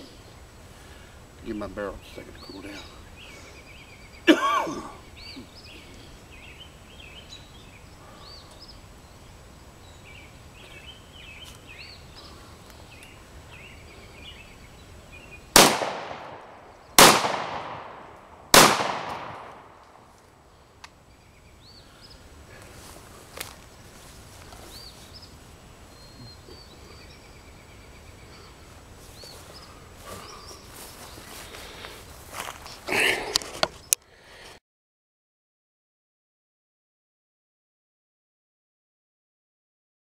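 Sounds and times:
birds chirping: 0.0s - 34.4s
person coughing: 4.3s - 5.0s
shotgun shots with echo: 15.6s - 19.9s.

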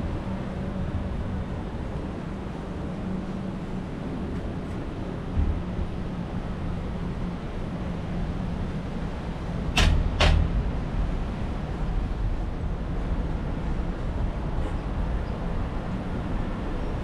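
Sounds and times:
wind and road rumble: 0.0s - 17.0s.

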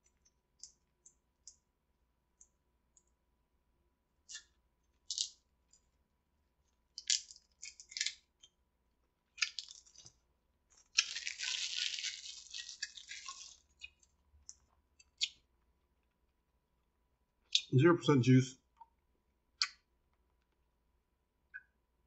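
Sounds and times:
candy wrapper crinkling: 7.0s - 8.3s, 9.4s - 14.6s.

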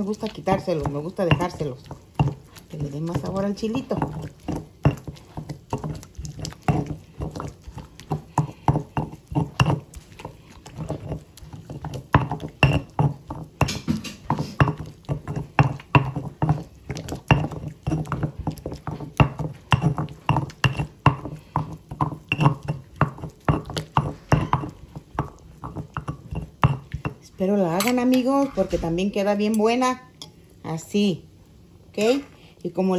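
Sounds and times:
stone pestle pounding in mortar: 0.0s - 27.2s.

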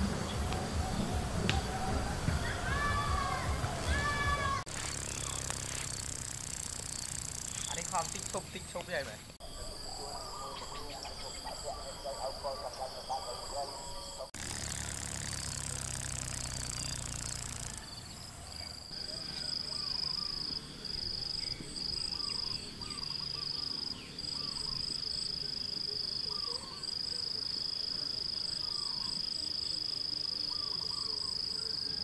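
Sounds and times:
insect trilling: 0.2s - 32.0s
rough rustling: 4.6s - 9.4s
faint bird chirps: 9.4s - 14.3s, 15.6s - 27.4s, 28.4s - 32.0s.

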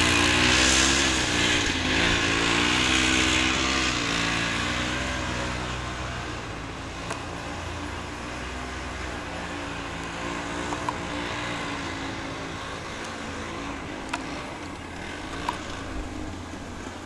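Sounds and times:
vehicle engine running: 0.0s - 17.0s.

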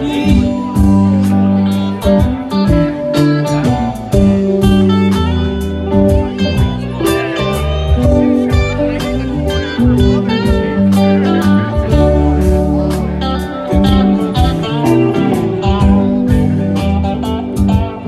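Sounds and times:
person singing: 0.0s - 3.3s
guitar: 0.0s - 18.0s
live band playing: 0.0s - 18.0s.

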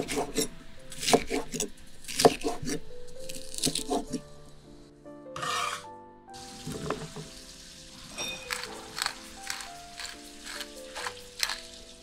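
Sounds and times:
knife chopping on wooden board: 0.0s - 2.8s, 3.5s - 4.2s
soft background music: 0.0s - 12.0s
rustling scrape of knife: 5.4s - 5.9s.

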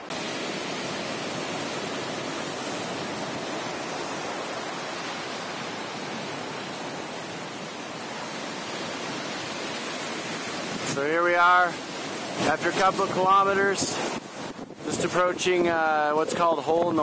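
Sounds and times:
ocean surf rushing: 0.0s - 17.0s.

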